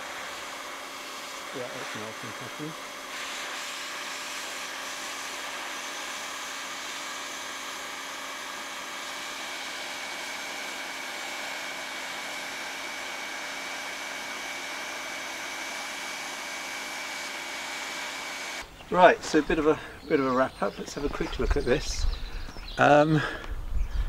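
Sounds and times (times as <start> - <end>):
hot air welding gun blower: 0.0 - 18.7.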